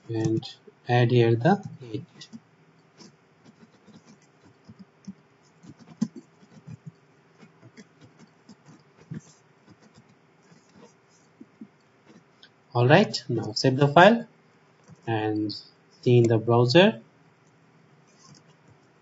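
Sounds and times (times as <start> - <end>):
keyboard typing: 3.0 - 12.2, 14.8 - 15.1, 18.1 - 18.9.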